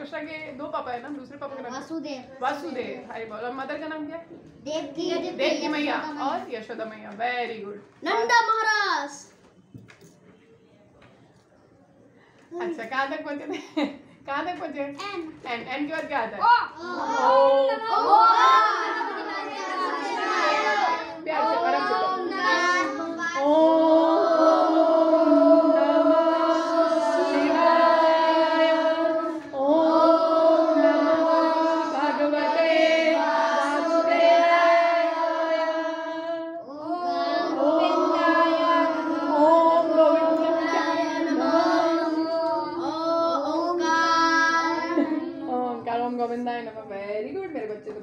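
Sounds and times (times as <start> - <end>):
children singing in unison: 16.8 - 45.5.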